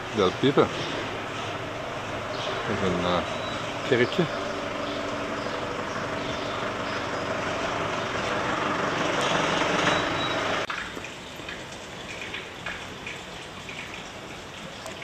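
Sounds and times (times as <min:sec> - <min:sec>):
vehicle engine running: 0:00.0 - 0:10.7.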